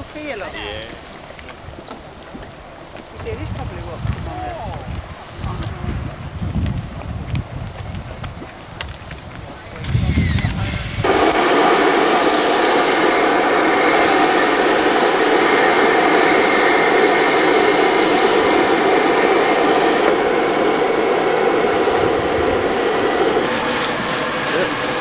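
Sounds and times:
steam vent hissing: 0.0s - 25.0s.

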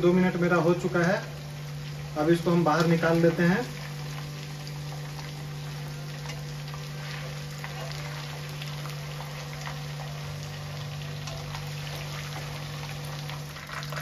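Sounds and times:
fish sizzling in hot oil: 0.0s - 14.0s
steady low hum: 0.0s - 14.0s.

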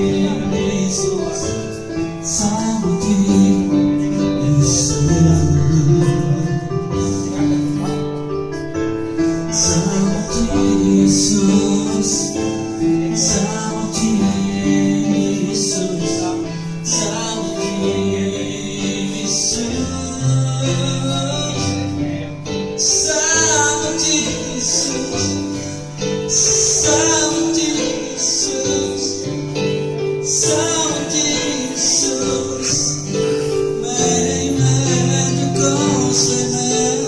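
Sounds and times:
held instrumental chords: 0.0s - 37.0s
voices singing: 9.6s - 37.0s.

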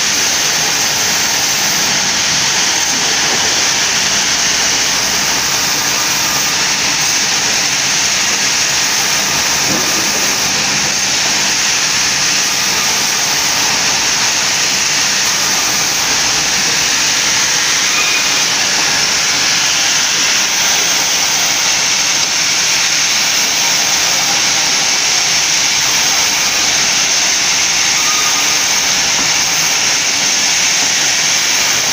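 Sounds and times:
band saw cutting boards: 0.0s - 31.9s.

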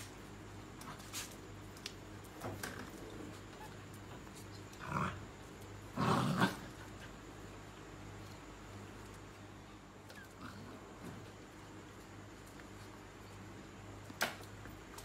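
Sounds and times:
dog growling: 4.8s - 5.3s, 5.9s - 7.0s.

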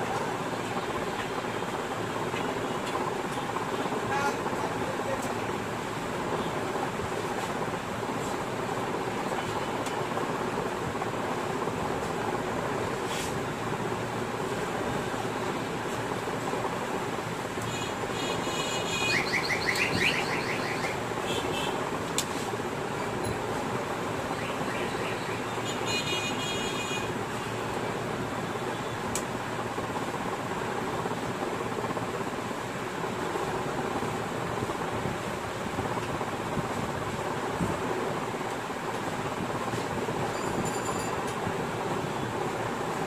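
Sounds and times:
steady background noise: 0.0s - 43.0s
high warbling chirp: 19.1s - 21.0s.

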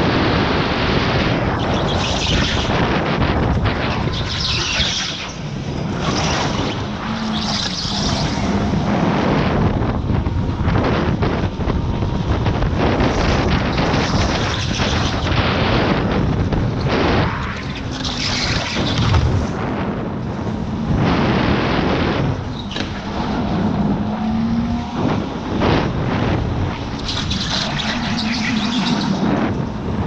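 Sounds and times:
wind buffeting microphone: 0.0s - 30.0s
tyre noise: 0.1s - 30.0s.

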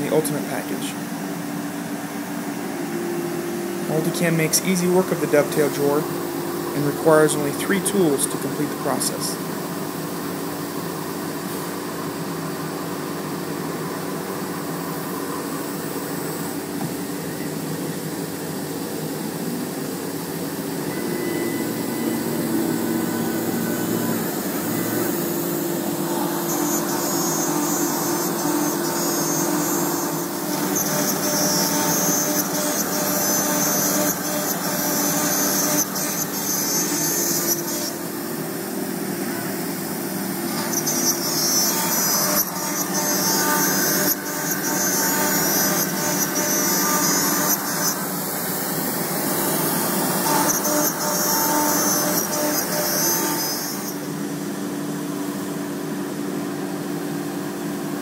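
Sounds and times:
router high-pitched cutting noise: 0.0s - 10.1s, 14.6s - 54.6s
steady machine hum: 0.0s - 58.0s.

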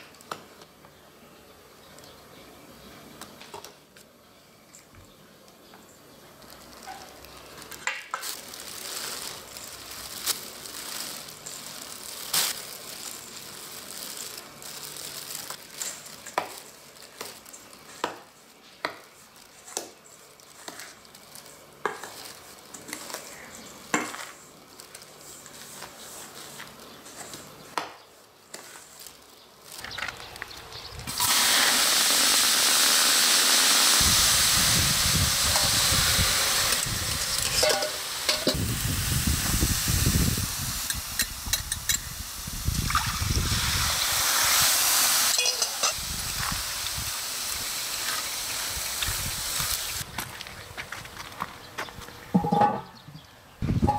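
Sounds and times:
loud frying sizzle: 6.4s - 23.2s, 29.0s - 50.1s
metal ladle scraping steel bowl: 37.4s - 38.6s.

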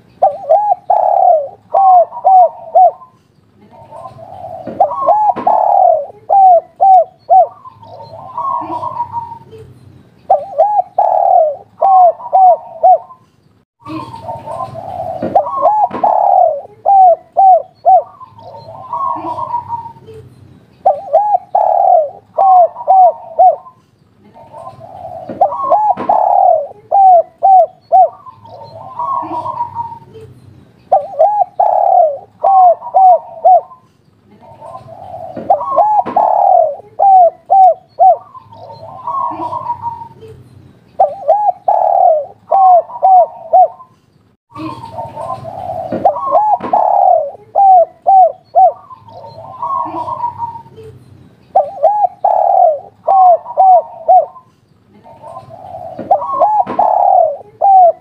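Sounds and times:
dove cooing: 0.0s - 9.6s, 10.3s - 13.2s, 13.9s - 20.2s, 20.8s - 30.3s, 30.9s - 40.4s, 41.0s - 43.9s, 44.5s - 50.9s, 51.6s - 58.0s.

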